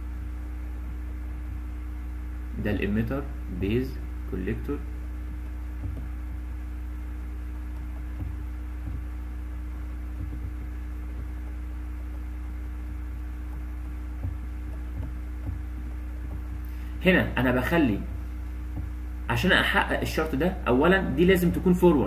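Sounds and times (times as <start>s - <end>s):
electrical mains hum: 0.0s - 22.0s
faint soft taps: 5.3s - 6.5s, 7.2s - 16.8s, 18.1s - 19.1s.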